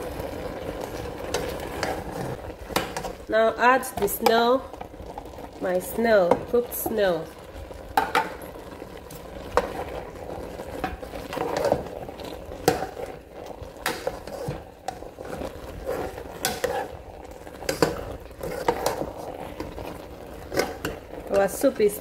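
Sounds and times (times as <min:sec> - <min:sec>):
spoon stirring thick soup: 0:00.1 - 0:03.3, 0:06.2 - 0:21.6.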